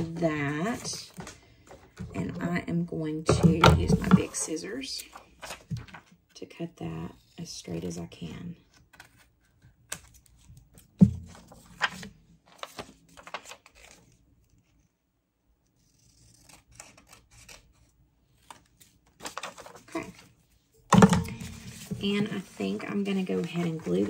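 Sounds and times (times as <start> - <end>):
paper rustling: 5.0 - 6.2, 8.8 - 14.8, 18.4 - 20.6, 21.3 - 24.0
scissors cutting paper: 15.7 - 18.0.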